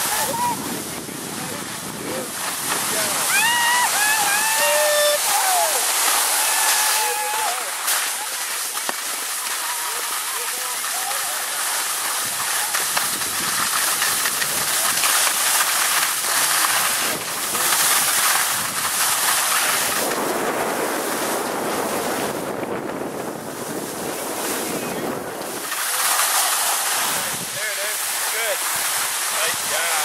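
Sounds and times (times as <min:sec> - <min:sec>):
wind on microphone: 0:00.0 - 0:04.7, 0:16.4 - 0:25.8
skis scraping over snow: 0:00.0 - 0:30.0.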